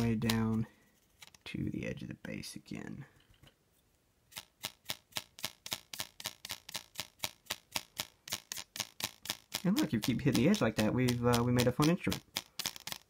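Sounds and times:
brush bristles ticking on plastic edge: 4.4s - 13.0s.

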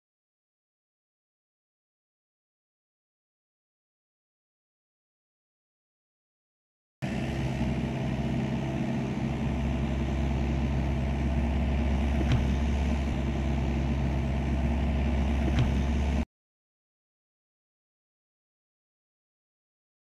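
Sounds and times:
excavator diesel engine running: 7.0s - 16.2s
sharp knocks: 12.2s - 12.8s, 15.5s - 16.0s.

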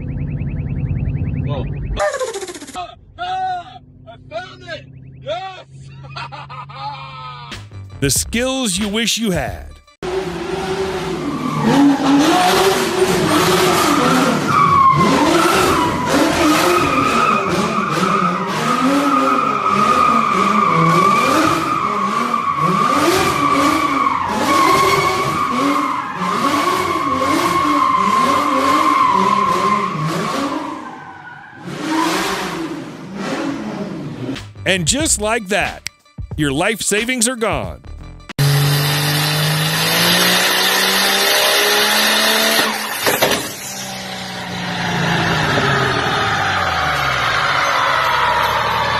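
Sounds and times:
car engine revving: 10.1s - 31.0s, 38.4s - 47.7s.

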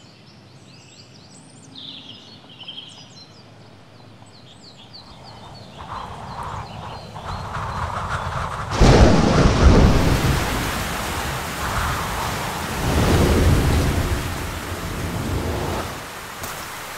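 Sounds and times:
birds chirping: 0.3s - 9.0s
storm wind rushing: 5.1s - 16.9s.

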